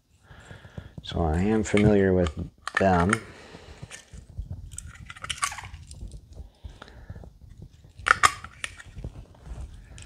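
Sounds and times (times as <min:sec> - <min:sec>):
light handling noise: 0:00.4 - 0:06.5.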